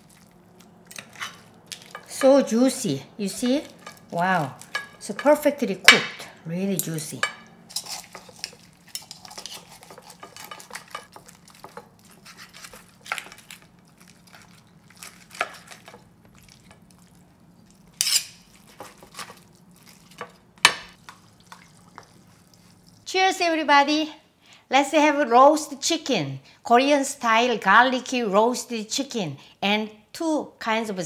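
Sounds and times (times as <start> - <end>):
knife tapping and scraping plate: 7.2 - 11.9
chicken skin crackling: 7.8 - 20.2.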